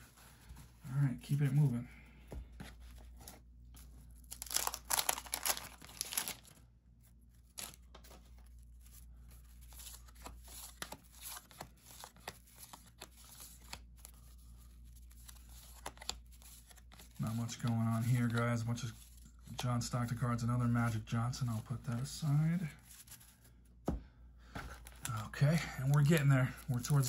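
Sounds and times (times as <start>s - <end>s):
cards rustling and clicking: 2.2s - 27.0s
wrapper tearing and crinkling: 4.3s - 6.6s.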